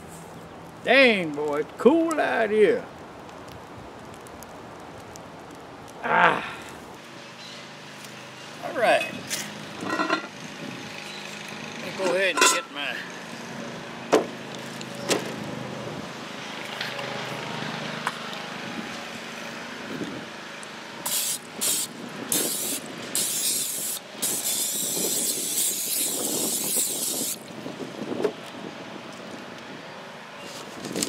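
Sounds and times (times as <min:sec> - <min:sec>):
aerosol can spraying: 0:21.0 - 0:27.4.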